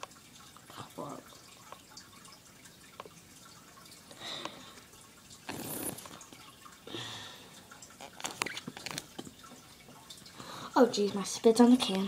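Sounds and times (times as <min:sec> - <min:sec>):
wet mouth slurping: 0:05.4 - 0:06.4.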